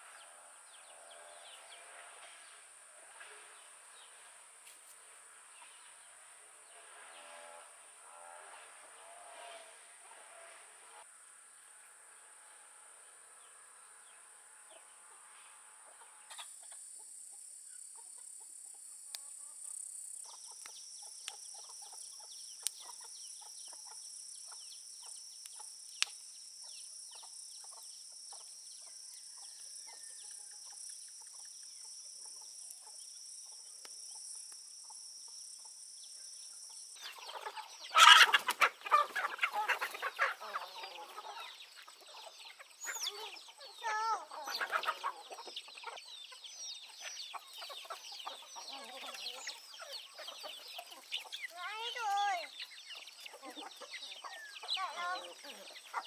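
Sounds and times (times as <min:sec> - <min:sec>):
insect drone: 0:00.0 - 0:55.9
chickens clucking: 0:15.8 - 0:35.8, 0:36.6 - 0:56.0.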